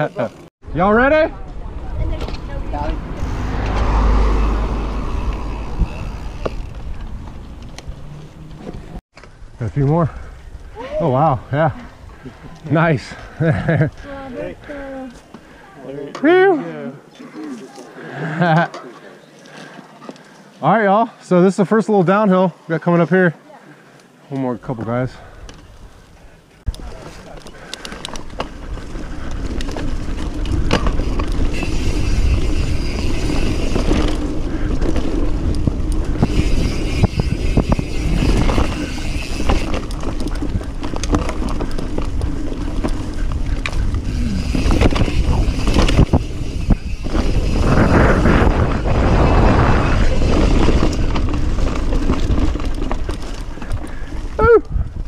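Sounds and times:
tyres rolling over dirt: 0:26.7 - 0:54.4
bike rattling and knocking: 0:26.8 - 0:55.0
wind buffeting microphone: 0:27.6 - 0:55.0.

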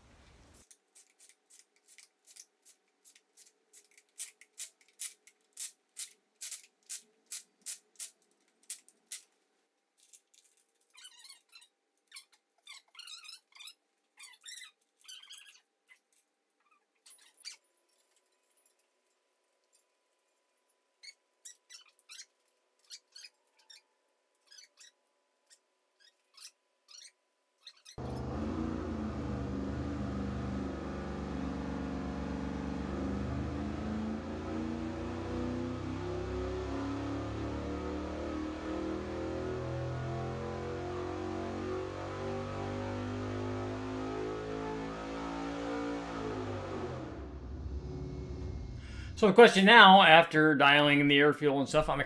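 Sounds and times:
small clicks and snaps: 0:00.6 - 0:09.4, 0:10.0 - 0:11.1
chirpy warbling squeak: 0:24.5 - 0:28.2
faint steady hum: 0:28.0 - 0:42.0.

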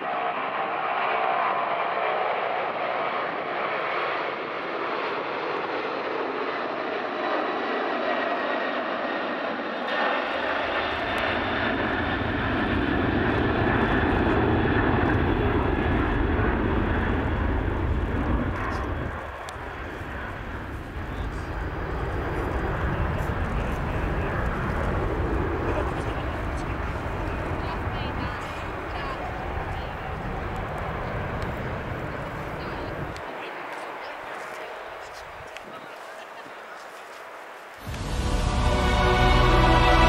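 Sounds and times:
jet engines roaring: 0:00.0 - 0:40.0
deep low rumble: 0:10.4 - 0:33.2.

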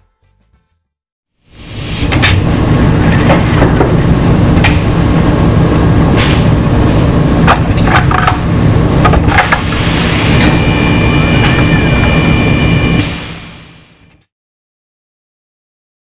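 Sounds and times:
loud low machine hum: 0:01.4 - 0:14.1.

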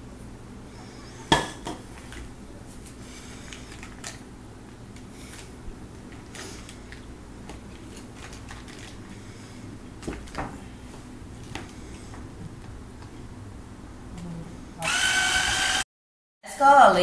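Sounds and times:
butter wrappers crinkling: 0:02.0 - 0:09.3.

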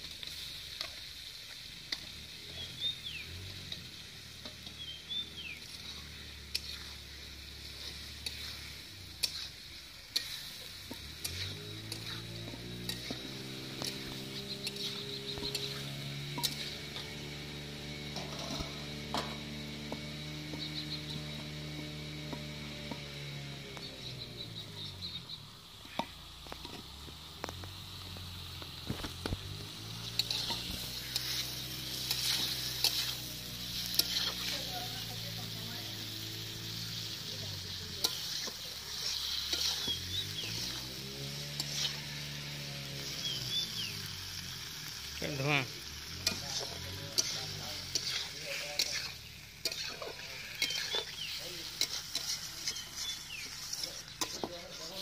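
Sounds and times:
fish frying in oil: 0:00.0 - 0:55.0
metal spatula scraping pan: 0:05.6 - 0:23.0, 0:30.0 - 0:37.1, 0:37.9 - 0:43.4, 0:46.2 - 0:55.0.

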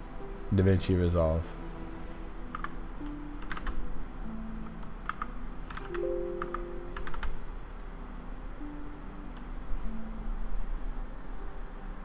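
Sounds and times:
soft background music: 0:00.0 - 0:12.0
computer keyboard clicks: 0:02.5 - 0:02.8, 0:03.4 - 0:03.8, 0:05.0 - 0:07.9.

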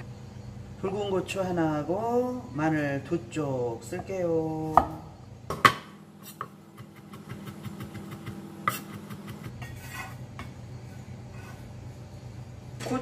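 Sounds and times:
knife chopping on wooden board: 0:04.7 - 0:09.5.

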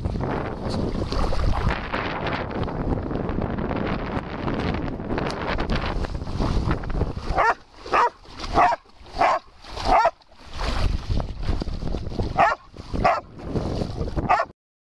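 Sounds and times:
water splashing: 0:00.0 - 0:14.5
wind on microphone: 0:00.0 - 0:14.5
dog barking: 0:07.3 - 0:10.2, 0:12.4 - 0:13.3, 0:14.3 - 0:14.5.

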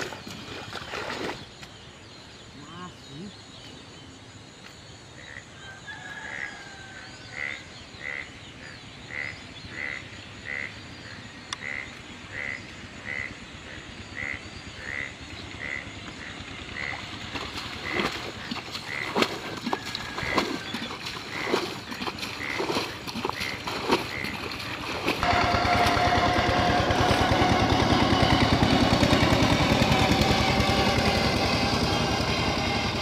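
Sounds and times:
water splashing from bucket: 0:00.0 - 0:01.5, 0:17.0 - 0:26.0
frog croaking: 0:05.2 - 0:05.6, 0:07.3 - 0:25.3.

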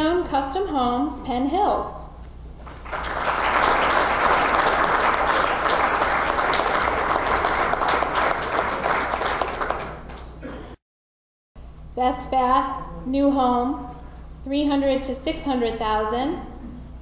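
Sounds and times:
audience applauding: 0:02.6 - 0:10.4.

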